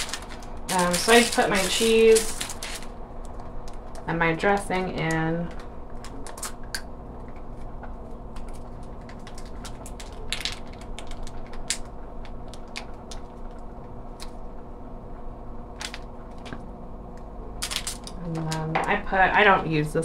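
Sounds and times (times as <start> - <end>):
plastic packets crinkling: 0.0 - 6.8, 8.2 - 13.6, 15.8 - 16.6, 17.6 - 18.7
steady low hum: 0.0 - 20.0.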